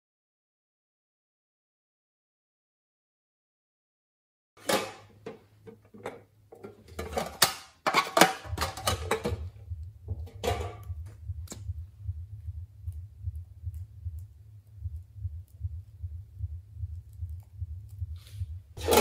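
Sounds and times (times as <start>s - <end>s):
tin cases clicking and clattering: 4.6s - 9.4s
low rhythmic throb: 8.4s - 19.0s.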